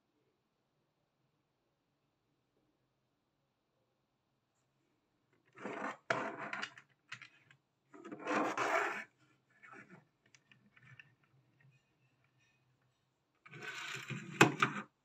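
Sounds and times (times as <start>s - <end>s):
toy buses scraping on tabletop: 5.5s - 6.8s, 8.0s - 11.2s, 13.5s - 14.9s.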